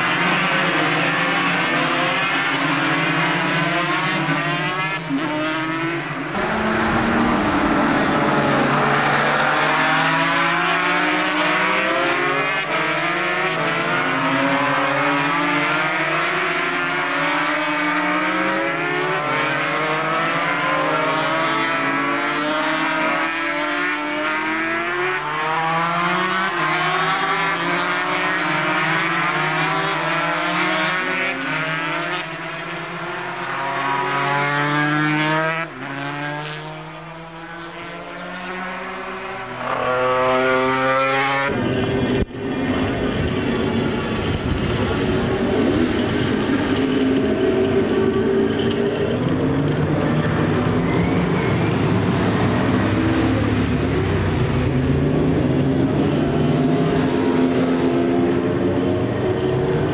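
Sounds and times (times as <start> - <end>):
racing motorcycle engines revving: 0.0 - 59.9.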